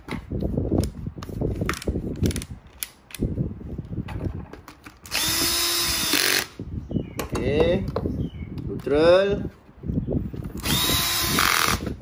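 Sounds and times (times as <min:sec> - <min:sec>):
drill clicking and ratcheting: 0:05.0 - 0:06.6, 0:10.6 - 0:12.0
drill motor running: 0:05.1 - 0:06.5, 0:10.6 - 0:12.0.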